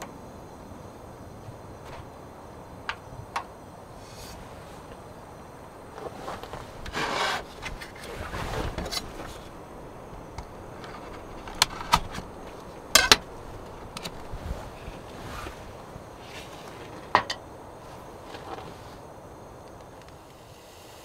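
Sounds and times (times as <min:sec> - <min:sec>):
objects rubbing and scraping: 0:05.9 - 0:09.6.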